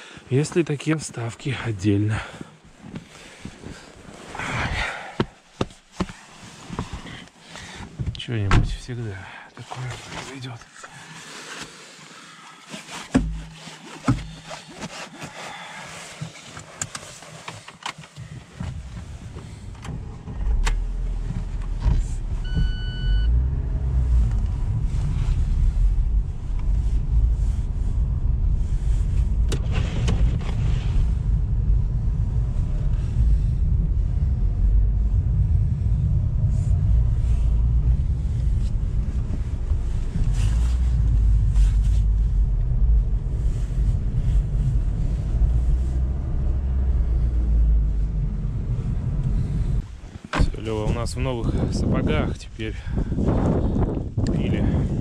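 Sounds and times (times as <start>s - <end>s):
sharp knocks: 13.1s - 14.3s
car driving through snow: 18.5s - 51.4s
short electronic beep: 22.4s - 23.4s.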